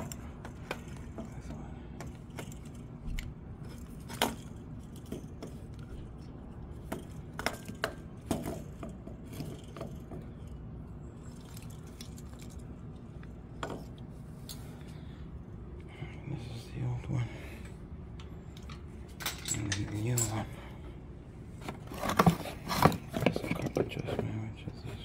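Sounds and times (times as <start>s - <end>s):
clicks and knocks of parts: 0.0s - 10.6s, 18.1s - 20.8s, 21.6s - 24.4s.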